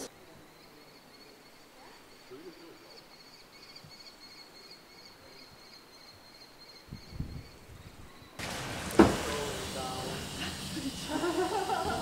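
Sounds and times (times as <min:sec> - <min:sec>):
low thumps: 0:08.4 - 0:09.8.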